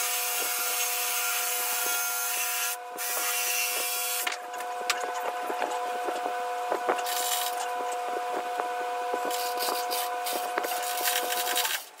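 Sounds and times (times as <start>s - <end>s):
steady whine: 2.7s - 12.0s.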